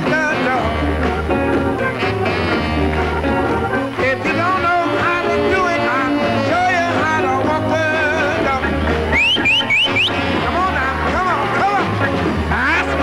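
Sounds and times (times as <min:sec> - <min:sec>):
man singing: 0:00.0 - 0:01.2, 0:04.0 - 0:09.1, 0:10.2 - 0:13.0
rhythm and blues band playing: 0:00.0 - 0:13.0.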